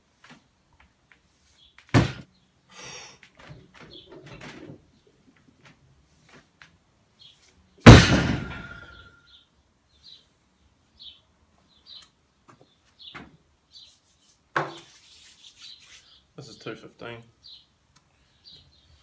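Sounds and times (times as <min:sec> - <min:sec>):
barbell crashing onto platform: 0:01.9 - 0:02.2, 0:07.8 - 0:09.1
bar and plates ringing: 0:07.9 - 0:09.2.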